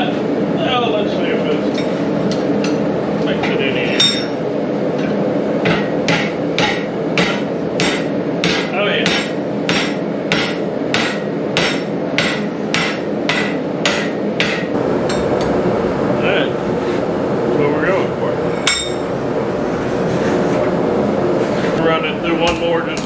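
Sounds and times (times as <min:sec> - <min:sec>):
hammer striking hot metal: 0:04.0 - 0:04.4, 0:05.6 - 0:15.6, 0:18.5 - 0:19.1.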